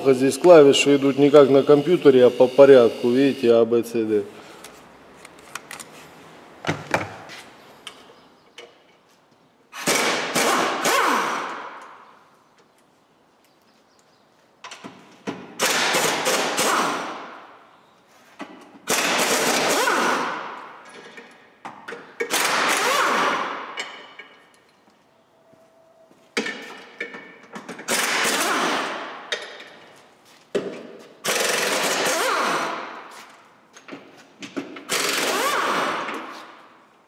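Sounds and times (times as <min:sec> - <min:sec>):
impact wrench hammering: 0:31.2 - 0:32.8.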